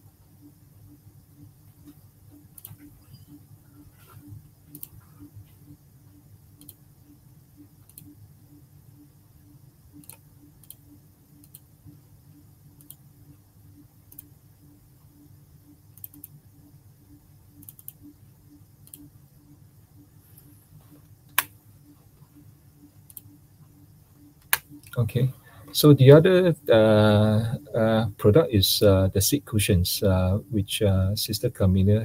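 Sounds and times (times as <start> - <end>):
faint low hum: 0.0 - 32.0
computer mouse clicking: 1.8 - 3.3, 4.7 - 5.0, 6.6 - 6.8, 7.8 - 8.1, 10.0 - 10.8, 11.4 - 11.6, 12.8 - 13.0, 14.1 - 14.3, 16.0 - 16.4, 17.6 - 18.1, 18.8 - 19.1, 23.1 - 23.4.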